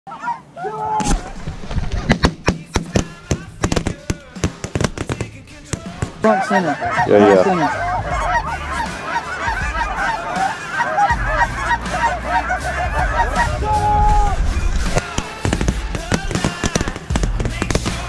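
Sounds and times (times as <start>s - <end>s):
sharp cracks: 1.0s - 6.4s, 14.4s - 18.0s
geese honking: 1.8s - 18.0s.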